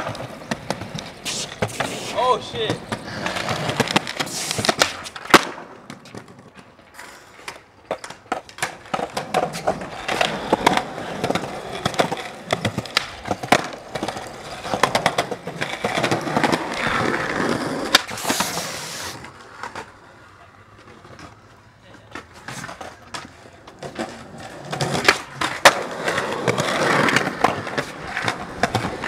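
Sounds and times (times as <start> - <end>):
skateboard clacks: 0.0 - 29.0
skateboard wheels rolling on concrete: 0.0 - 29.0.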